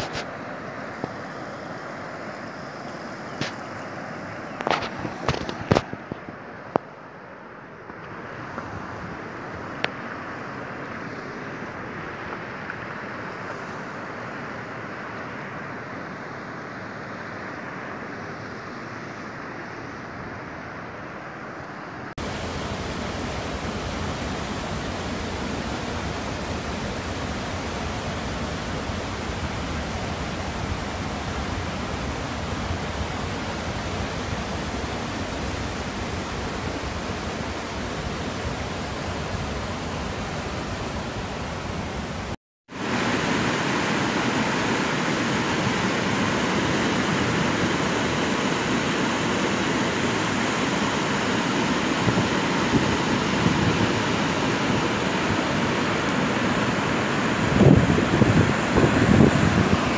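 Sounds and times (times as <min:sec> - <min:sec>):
water rushing over rocks: 0:22.2 - 0:59.9.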